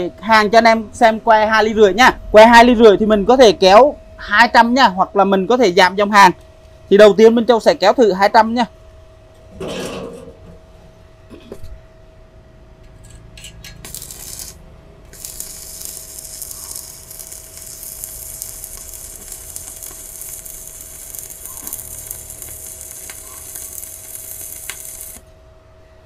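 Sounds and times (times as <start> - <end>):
welding arc crackling hiss: 13.6 - 25.3.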